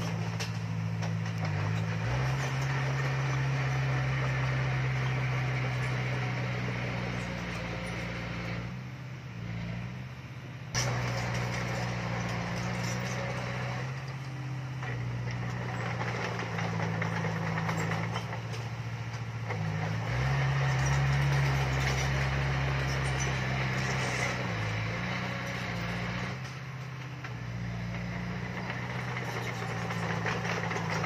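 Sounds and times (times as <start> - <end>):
diesel engine running: 0.0 - 31.0.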